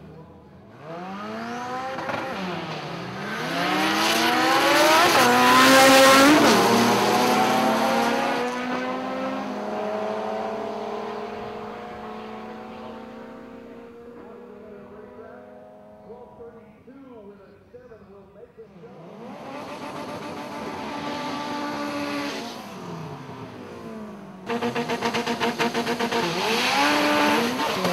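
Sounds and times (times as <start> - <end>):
drag cars accelerating: 0.0 - 16.5, 18.6 - 27.9
engine revs at gear changes: 0.7 - 16.2, 18.7 - 27.9.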